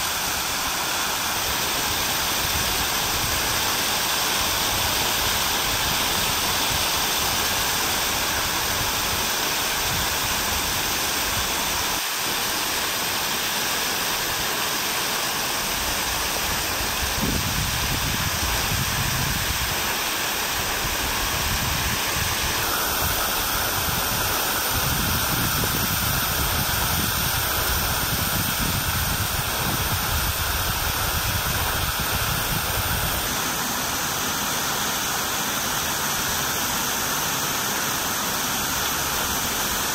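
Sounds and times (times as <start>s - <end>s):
fountain water falling: 0.0s - 39.9s.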